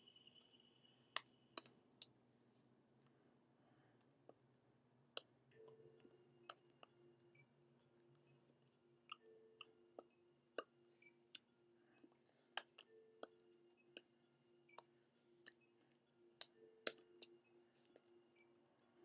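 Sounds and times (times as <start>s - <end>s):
faint steady hum: 0.0s - 19.0s
hands clicking and tapping: 12.6s - 14.1s, 14.7s - 18.1s.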